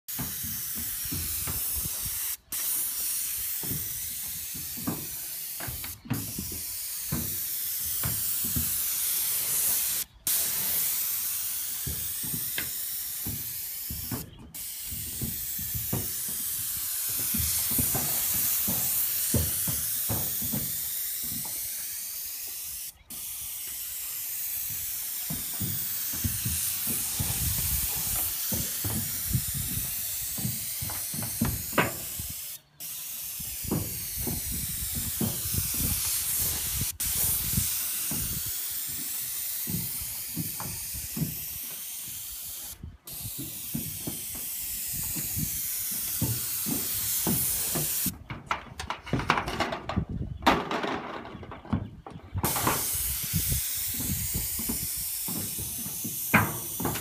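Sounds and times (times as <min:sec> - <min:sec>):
paint spray gun hissing: 0:00.1 - 0:48.1, 0:52.4 - 0:57.0.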